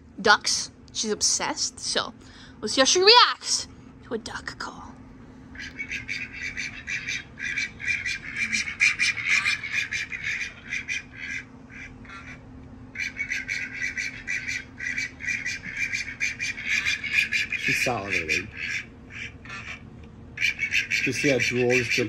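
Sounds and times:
duck quacking through phone speaker: 5.6s - 12.4s, 13.0s - 19.8s, 20.4s - 22.0s.

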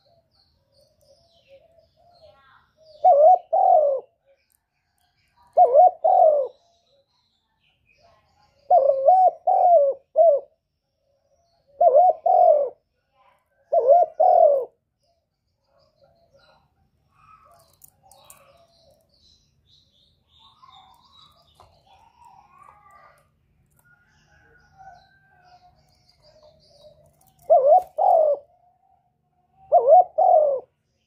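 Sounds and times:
dove cooing: 2.8s - 4.3s, 5.4s - 6.6s, 8.7s - 10.6s, 11.7s - 12.8s, 13.5s - 14.8s, 20.3s - 29.0s, 29.6s - 30.7s.

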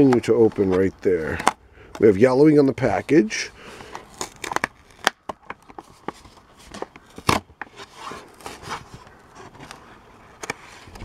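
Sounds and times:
stiff plastic clicking and crackling: 3.7s - 7.7s.

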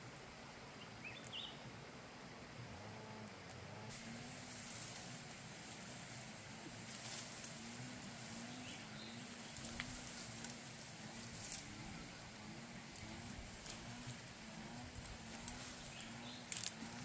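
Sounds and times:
faint low wavering hum: 0.0s - 17.0s
foliage rustling and snapping: 3.5s - 17.0s.

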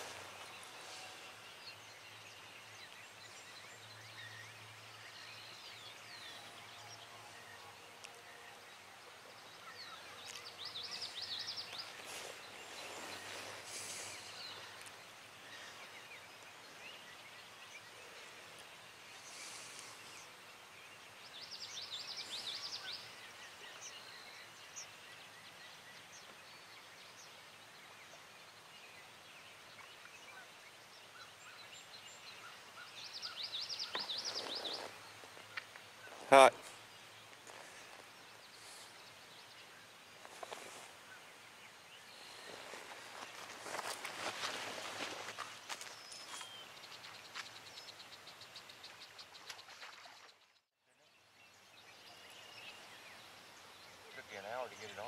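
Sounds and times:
songbirds calling: 0.0s - 55.0s
loud trilled bird song: 20.2s - 37.3s, 45.8s - 55.0s.

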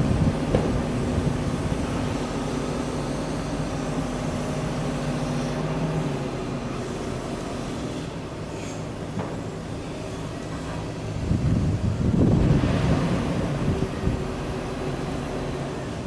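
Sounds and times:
diesel engine humming: 0.0s - 16.0s.

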